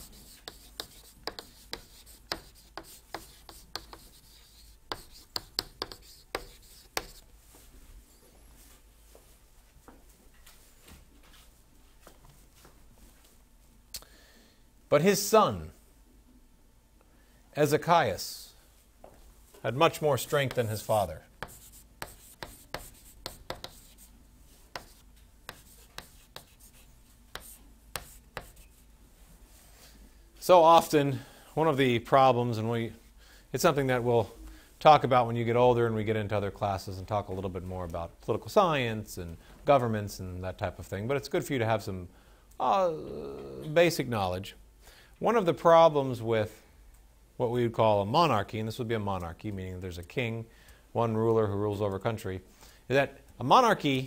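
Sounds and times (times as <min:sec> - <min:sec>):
chalk tapping and scraping on chalkboard: 0:00.0 - 0:07.3, 0:20.2 - 0:28.8.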